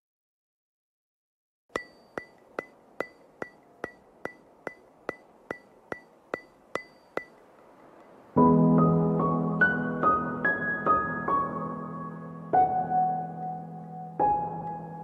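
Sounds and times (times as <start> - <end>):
ringing ticks: 1.7 - 8.2
piano music: 8.4 - 15.0.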